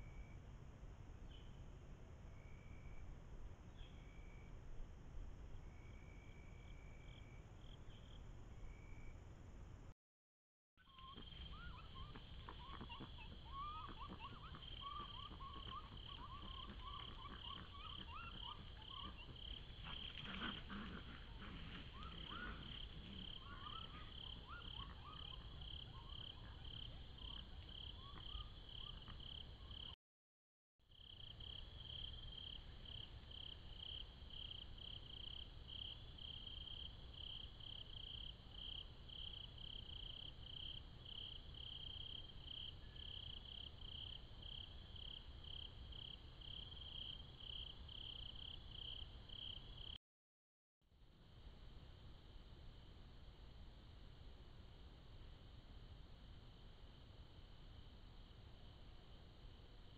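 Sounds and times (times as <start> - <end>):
high cricket-like chirping: 10.9 - 30.0, 30.9 - 50.0
lower squeaky chirps: 10.9 - 30.0.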